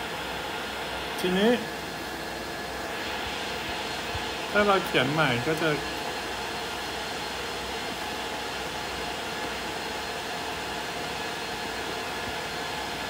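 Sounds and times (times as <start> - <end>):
steady hiss: 0.0 - 9.0.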